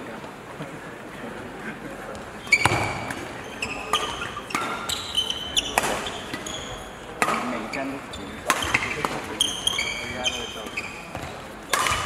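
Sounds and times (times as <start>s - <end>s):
shoes squeaking on court: 2.3s - 12.0s
racket striking shuttlecock: 5.7s - 6.5s, 7.2s - 7.7s, 8.4s - 9.5s, 11.1s - 12.0s.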